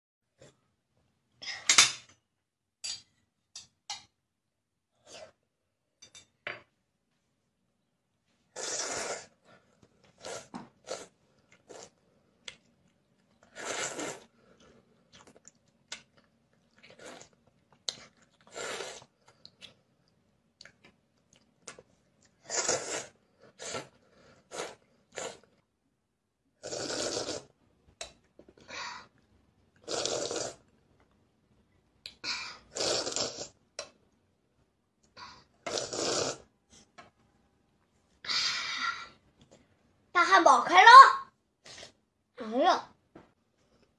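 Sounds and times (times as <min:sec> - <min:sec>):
child slurping noodles: 0:08.5 - 0:12.0, 0:13.5 - 0:14.4, 0:18.4 - 0:19.1, 0:22.4 - 0:25.5, 0:26.6 - 0:27.6, 0:29.8 - 0:30.7, 0:32.2 - 0:33.6, 0:35.3 - 0:36.5.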